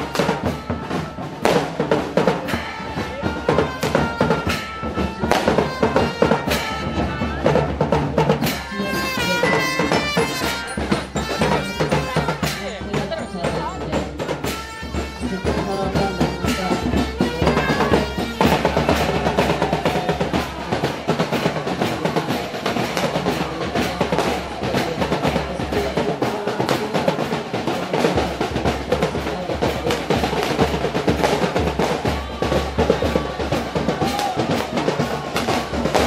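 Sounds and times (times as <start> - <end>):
fast rhythmic drumming with rolls: 0.0 - 36.0.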